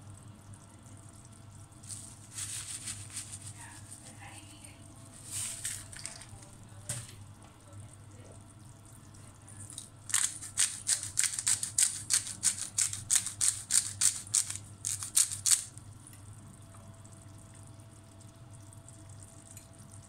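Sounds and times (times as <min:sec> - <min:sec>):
pepper grinder grinding: 0:10.1 - 0:15.7.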